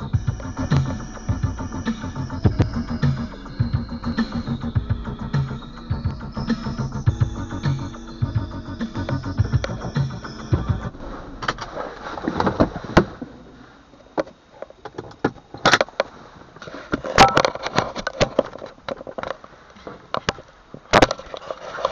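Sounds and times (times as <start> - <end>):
car stereo music: 0.0 - 12.0.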